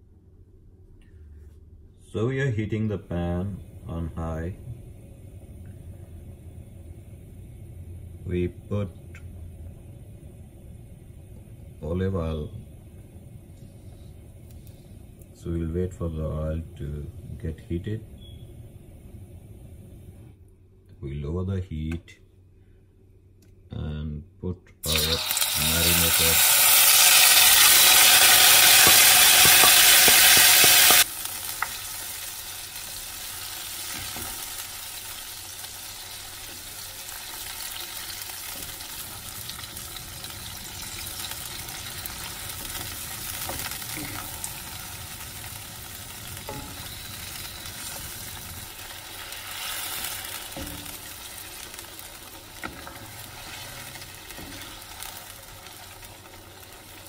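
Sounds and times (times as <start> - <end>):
meat sizzling in hot oil: 24.8 - 57.0.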